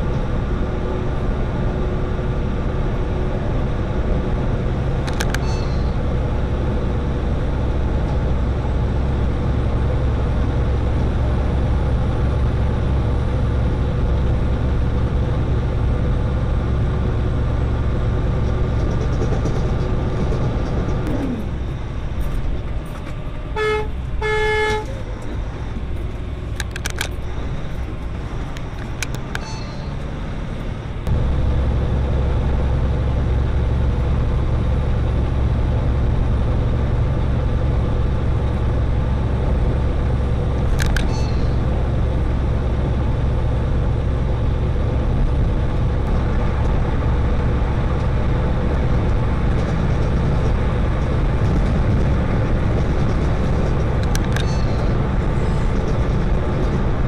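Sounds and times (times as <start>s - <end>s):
road noise: 0.0s - 57.0s
truck engine rumble: 0.0s - 57.0s
vehicle horn: 23.5s - 25.1s.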